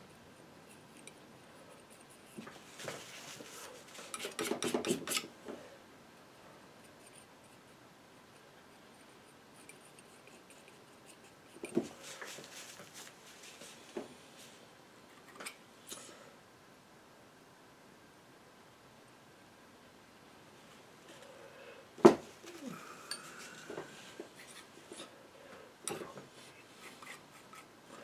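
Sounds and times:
painting knife scraping paint: 0:00.0 - 0:05.3, 0:08.7 - 0:13.1, 0:24.3 - 0:25.1, 0:26.4 - 0:28.0.

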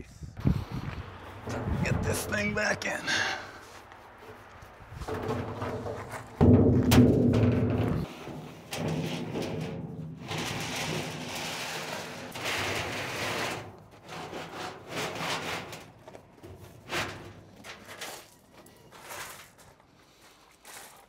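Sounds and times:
metal tank scraping on gravel: 0:00.5 - 0:21.0.

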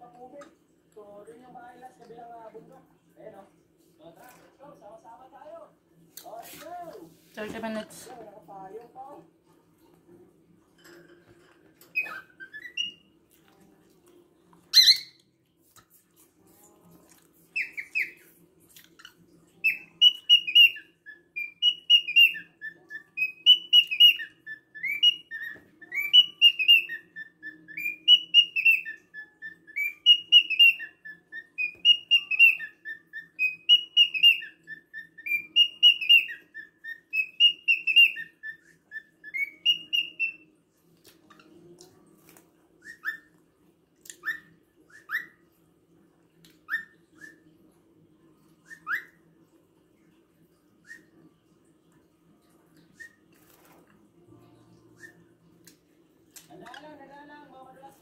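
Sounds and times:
faint low hum: 0:00.0 - 0:58.0
cockatiel whistling a tune: 0:11.9 - 0:13.0, 0:14.7 - 0:15.2, 0:17.6 - 0:18.3, 0:19.6 - 0:40.5, 0:42.8 - 0:43.3, 0:44.1 - 0:45.4, 0:46.7 - 0:47.6, 0:48.6 - 0:49.2, 0:50.8 - 0:51.2, 0:52.8 - 0:53.5, 0:54.8 - 0:55.3.

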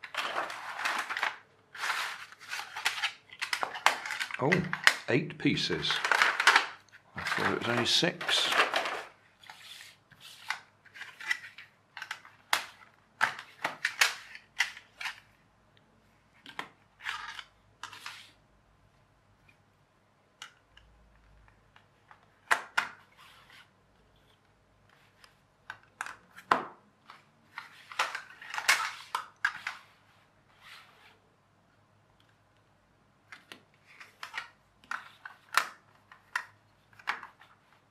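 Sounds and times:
plastic track pieces clicking: 0:00.0 - 0:05.1, 0:05.8 - 0:09.6, 0:10.4 - 0:15.2.

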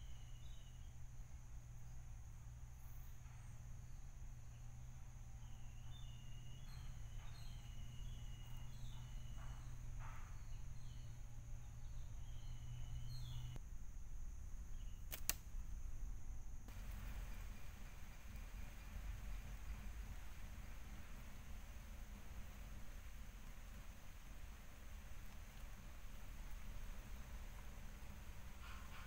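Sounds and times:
bird chirps: 0:00.0 - 0:01.0, 0:02.9 - 0:13.6, 0:16.7 - 0:29.0
high insect drone: 0:00.0 - 0:29.0
sharp click: 0:15.1 - 0:15.5.

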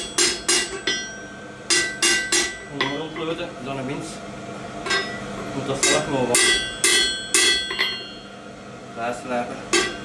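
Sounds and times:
hammer striking metal on anvil: 0:00.0 - 0:03.4, 0:04.8 - 0:05.2, 0:05.8 - 0:08.3, 0:09.7 - 0:10.0.

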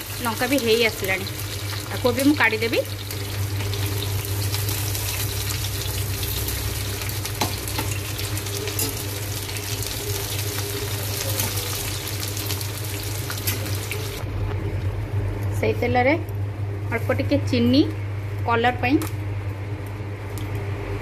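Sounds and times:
vegetables sizzling in hot oil: 0:00.0 - 0:14.2
steady low hum: 0:00.0 - 0:21.0.

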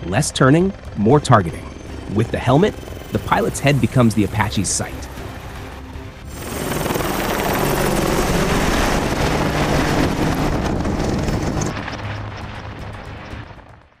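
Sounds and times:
helicopters flying overhead: 0:00.0 - 0:13.8.

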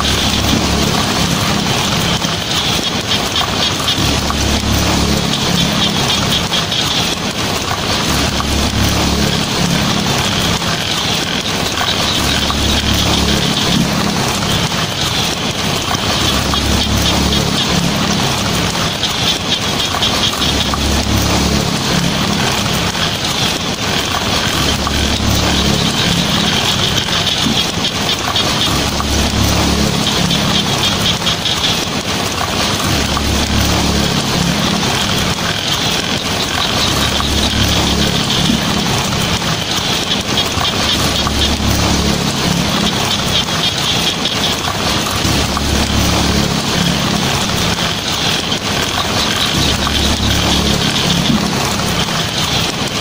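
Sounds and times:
heavy rain on a tin roof: 0:00.0 - 0:53.0
low rumble: 0:03.8 - 0:43.6.

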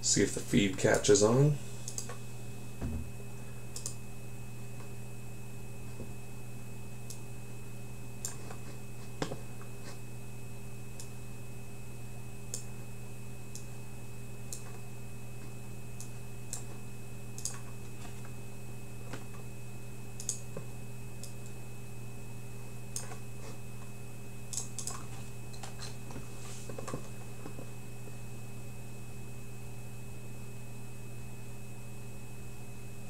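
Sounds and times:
electrical hum with high whine: 0:00.0 - 0:33.0
computer clicks: 0:01.9 - 0:02.2, 0:03.8 - 0:04.0, 0:17.4 - 0:17.8, 0:20.2 - 0:20.5, 0:24.5 - 0:25.7.

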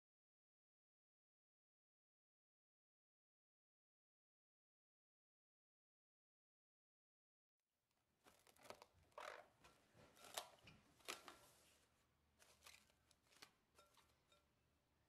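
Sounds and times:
plastic cling film crinkling: 0:08.2 - 0:14.4.

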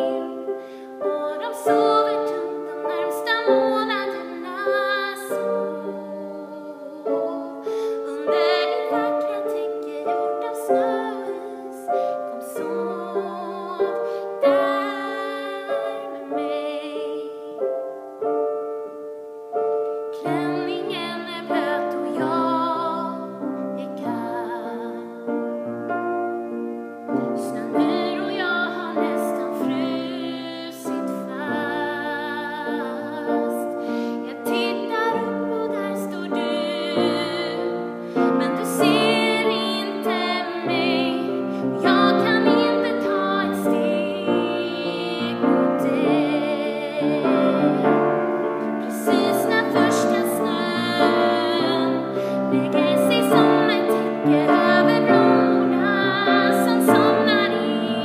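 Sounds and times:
woman singing slow song: 0:00.0 - 0:18.2, 0:20.1 - 0:25.5, 0:27.1 - 0:58.0
piano accompaniment: 0:00.0 - 0:58.0.

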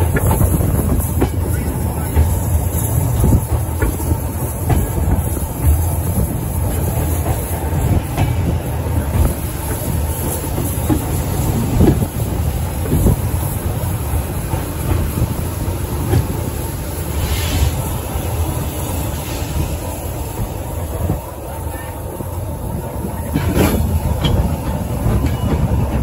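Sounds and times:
wheels clicking over rail joints: 0:00.0 - 0:17.0, 0:22.2 - 0:26.0
steam train rumbling: 0:00.0 - 0:26.0.

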